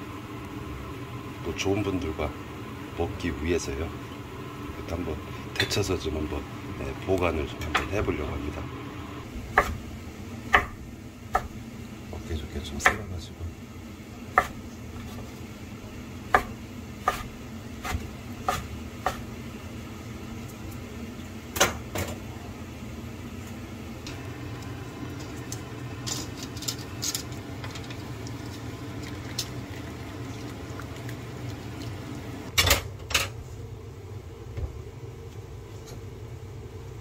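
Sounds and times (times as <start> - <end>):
boiling water: 0.0 - 32.6
knife chopping on wooden board: 9.6 - 9.8, 10.5 - 11.6, 14.3 - 15.2, 16.3 - 19.3.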